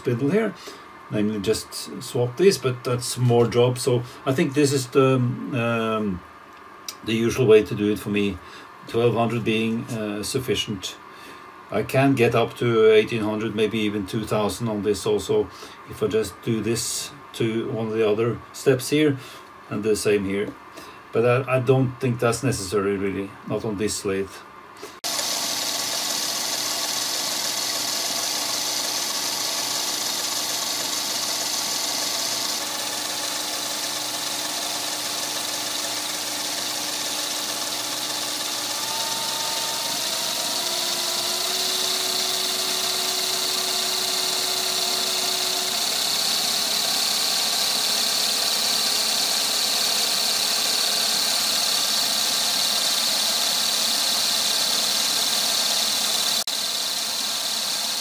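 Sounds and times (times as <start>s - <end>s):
lathe motor whine and hiss: 24.9s - 58.0s.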